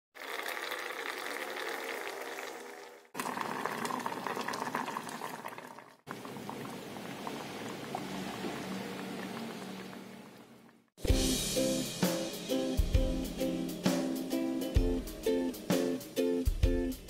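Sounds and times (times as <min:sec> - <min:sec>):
soup bubbling in a pot: 0:00.2 - 0:10.8.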